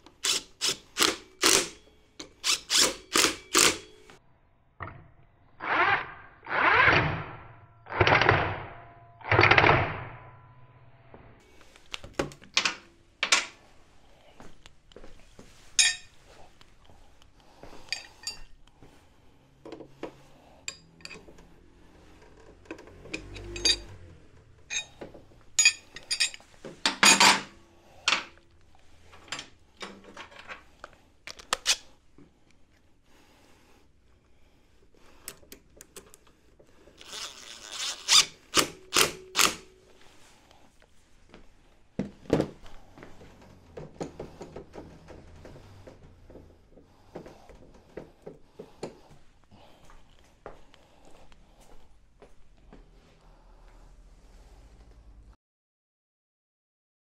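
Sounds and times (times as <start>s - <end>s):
cordless power driver: 0.2s - 3.8s, 37.0s - 39.7s
hand tools clinking and knocking: 15.7s - 16.2s, 17.7s - 18.6s, 19.7s - 21.4s, 22.8s - 24.0s, 24.6s - 28.4s.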